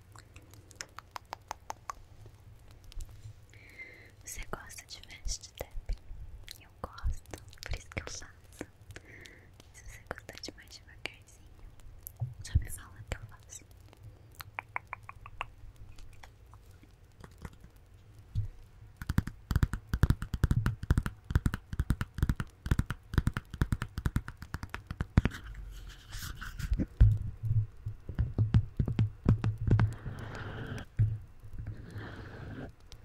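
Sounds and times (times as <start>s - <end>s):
fingernails tapping on notepad: 28.2s - 31.1s.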